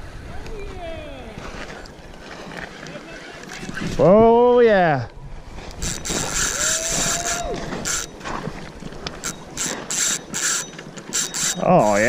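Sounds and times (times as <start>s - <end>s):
fishing reel drag clicking: 5.7s - 8.3s, 9.0s - 12.0s.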